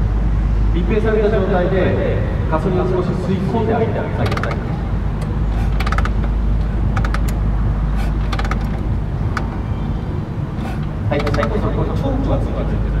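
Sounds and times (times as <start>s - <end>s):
steady low rumble: 0.0s - 13.0s
metallic clicks: 4.2s - 9.6s, 10.6s - 11.7s.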